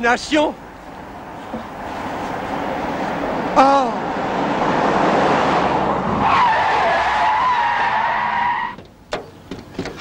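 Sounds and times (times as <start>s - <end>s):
car tyres skidding and squealing: 1.1s - 8.9s.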